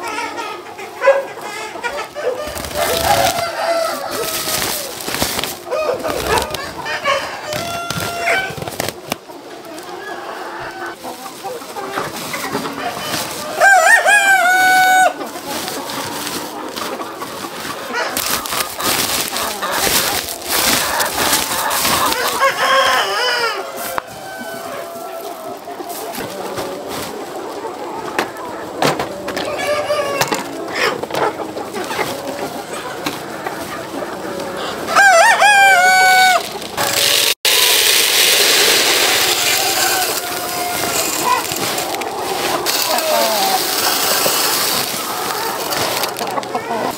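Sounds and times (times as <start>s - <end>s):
chicken squawking calls: 0.0s - 8.7s, 12.2s - 16.4s, 17.2s - 27.1s, 29.4s - 33.0s, 34.4s - 46.9s
chickens calling and clucking: 0.0s - 46.9s
rooster crowing: 2.2s - 4.9s, 5.7s - 8.6s, 13.5s - 15.2s, 22.1s - 25.5s, 34.9s - 36.5s, 38.7s - 43.8s.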